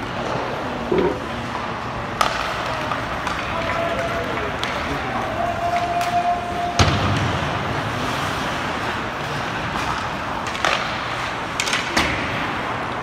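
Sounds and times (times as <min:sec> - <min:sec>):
arena crowd noise: 0:00.0 - 0:13.0
puck and sticks cracking on boards: 0:02.2 - 0:05.0, 0:09.6 - 0:12.6.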